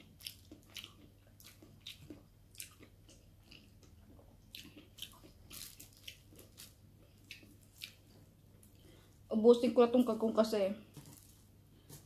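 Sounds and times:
chewing with mouth smacks: 0.0 - 8.2.

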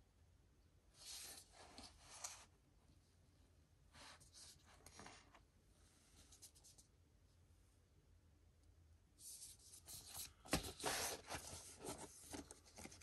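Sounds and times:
paper and card rustling: 9.2 - 13.0.

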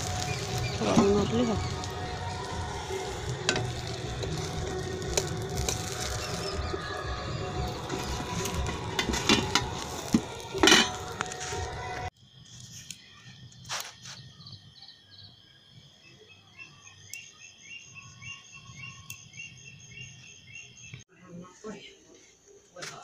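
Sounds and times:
insects chirping: 0.0 - 23.0
metal spatula scraping a pan: 3.2 - 12.1.

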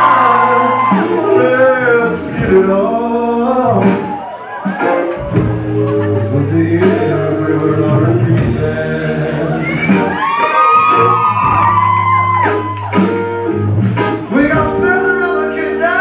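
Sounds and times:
man singing into microphone: 0.0 - 4.2, 5.8 - 10.2, 14.3 - 16.0
rock band playing: 0.0 - 16.0.

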